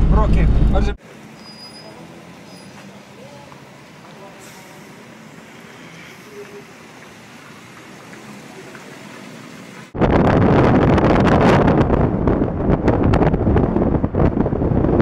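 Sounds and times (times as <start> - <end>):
wind buffeting microphone: 9.9 - 15.0.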